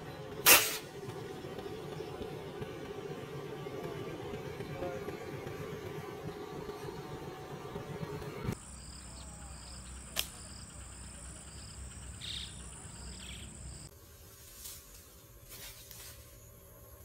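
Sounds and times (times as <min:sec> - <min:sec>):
insects buzzing and chirping: 0:08.5 - 0:17.0
sharp snap: 0:10.1 - 0:10.4.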